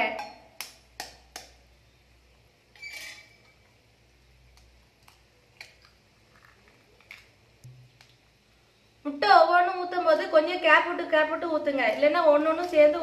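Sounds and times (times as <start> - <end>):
eggshell cracking: 4.5 - 8.2.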